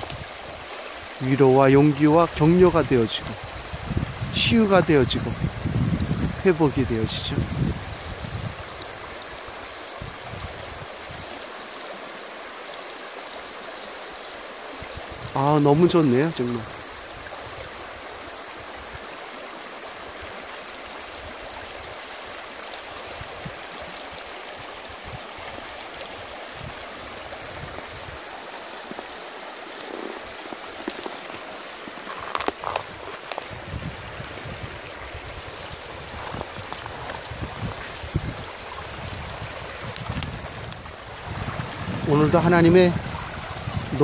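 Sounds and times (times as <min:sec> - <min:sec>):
stream flowing over pebbles: 0:00.0 - 0:44.0
water gurgles: 0:00.0 - 0:44.0.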